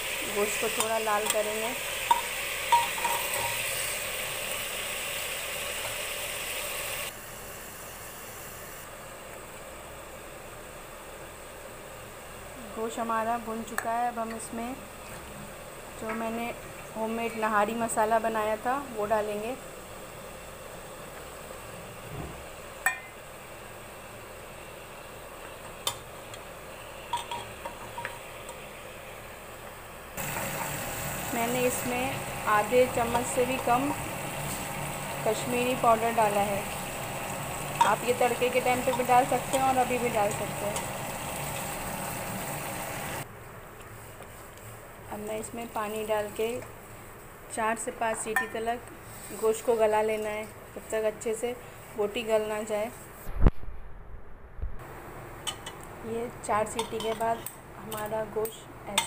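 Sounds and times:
meat sizzling in hot oil: 0.0 - 9.0, 30.1 - 43.2
metal ladle clinking on pot: 2.1 - 3.7, 22.8 - 23.2, 27.1 - 28.2, 55.4 - 55.8, 56.8 - 58.1.

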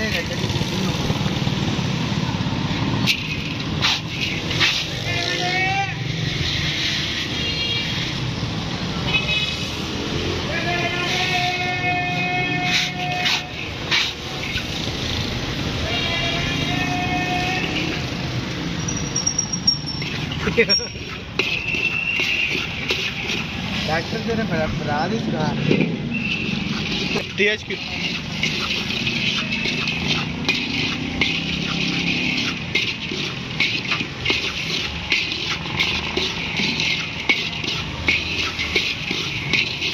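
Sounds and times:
metal scoop scraping through sand: 3.1 - 5.0, 12.6 - 14.7, 26.3 - 39.9
sand and chickpeas pouring into wok: 27.0 - 39.9.

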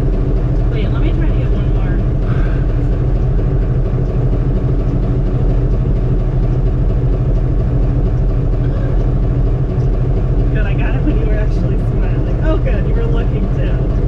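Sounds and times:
truck engine idling: 0.0 - 14.0.

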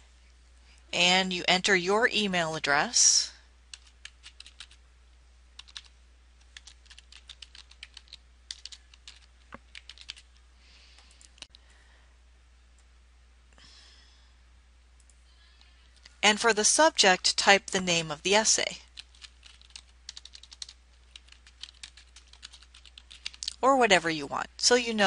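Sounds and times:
keyboard typing: 3.7 - 4.8, 5.6 - 10.3, 19.0 - 23.6.

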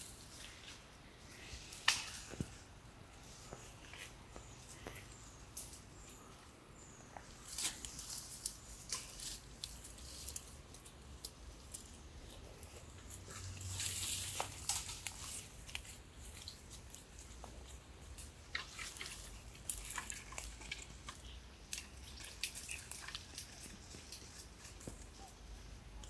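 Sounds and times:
undergrowth rustling: 0.0 - 26.0
goat biting and chewing weeds: 7.2 - 25.5.

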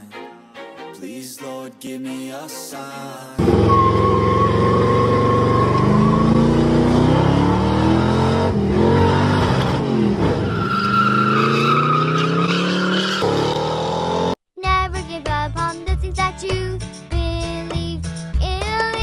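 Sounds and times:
car engine revving: 3.4 - 14.4.

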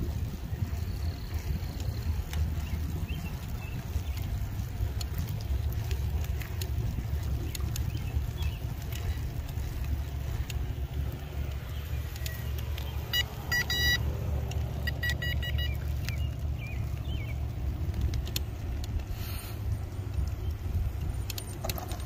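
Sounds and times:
wind rumble on microphone: 0.0 - 13.5, 14.2 - 22.0
high beeping pulses: 13.1 - 14.0, 14.8 - 15.8.

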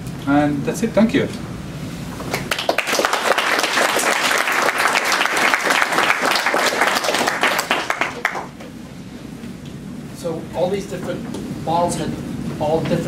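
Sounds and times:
audience applauding: 2.3 - 8.6.

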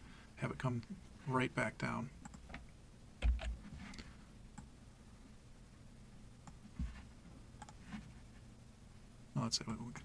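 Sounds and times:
computer mouse clicks: 2.2 - 2.6, 7.6 - 7.8.

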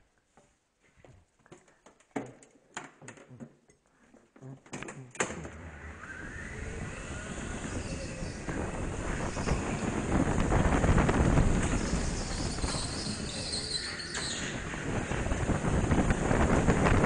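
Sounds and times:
go-kart rumble with rising whine: 5.2 - 17.0.

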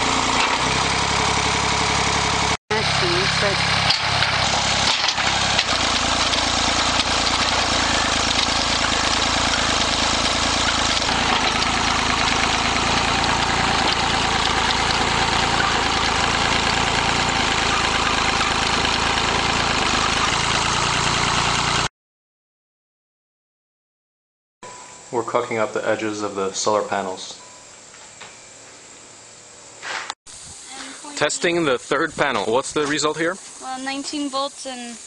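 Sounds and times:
rototiller tilling ground: 0.0 - 21.9
tractor engine running: 0.0 - 21.9.

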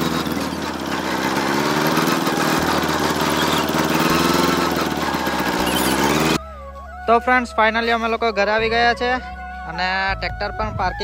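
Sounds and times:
tractor engine running: 0.0 - 6.4.

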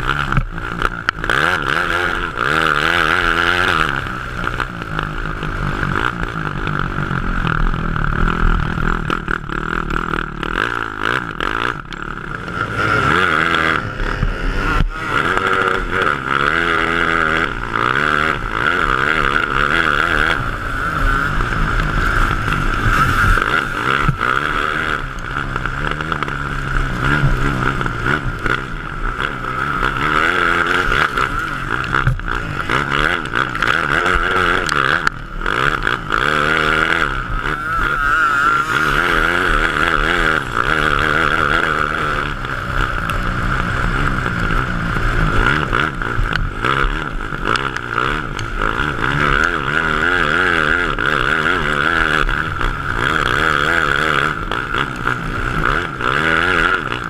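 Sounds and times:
motocross engine revving: 0.0 - 57.0.

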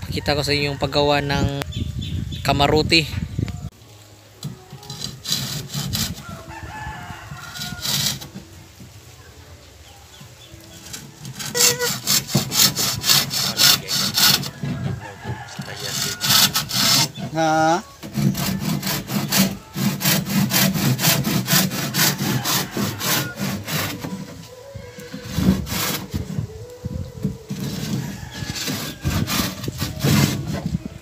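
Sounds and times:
handsaw cutting wood: 4.8 - 6.3, 7.6 - 8.4, 10.8 - 14.9, 15.6 - 26.5, 27.5 - 30.8
rooster crowing: 6.2 - 8.2, 14.3 - 17.1, 21.7 - 25.7, 27.6 - 29.6.

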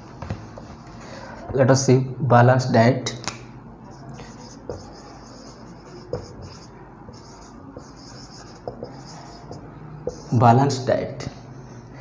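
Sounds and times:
marker scratching on whiteboard: 3.9 - 10.4
marker tip tapping board: 6.0 - 6.6, 7.8 - 10.3.

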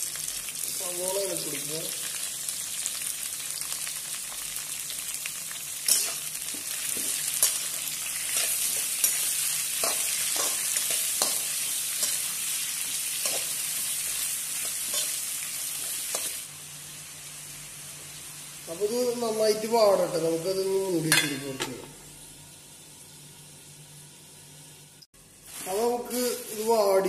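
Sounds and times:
onions sizzling in oil: 0.0 - 27.0
metal turner scraping wok: 5.9 - 6.3, 6.9 - 12.4, 14.6 - 15.2.

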